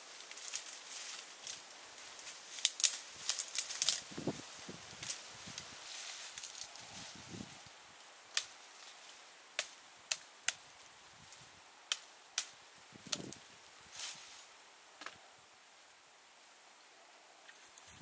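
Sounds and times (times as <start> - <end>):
leaves rustling: 0.0 - 18.0
twigs snapping: 0.2 - 4.2, 4.9 - 6.9, 8.3 - 10.6, 11.2 - 13.4.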